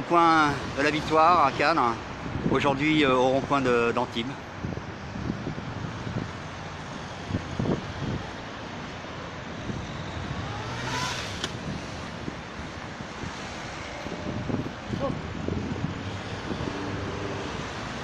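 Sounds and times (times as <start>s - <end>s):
cars driving past: 4.2s - 18.0s
vehicle passing loudly: 9.2s - 18.0s.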